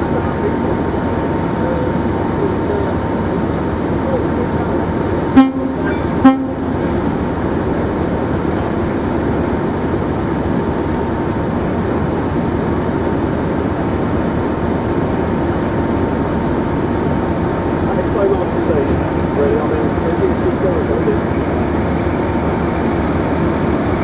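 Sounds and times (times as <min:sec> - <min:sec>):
diesel engine running: 0:00.0 - 0:24.0
locomotive horn toot: 0:05.3 - 0:07.0.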